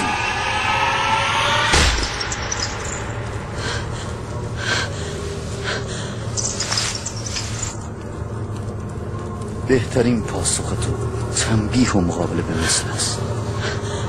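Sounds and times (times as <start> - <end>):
man breathing heavily: 3.3 - 7.0.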